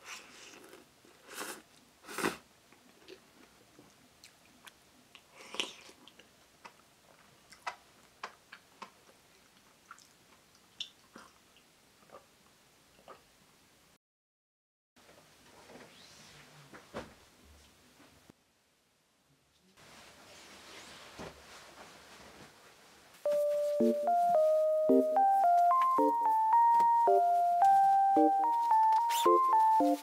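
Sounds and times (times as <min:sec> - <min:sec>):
person chewing noodles: 0:04.2 - 0:12.3.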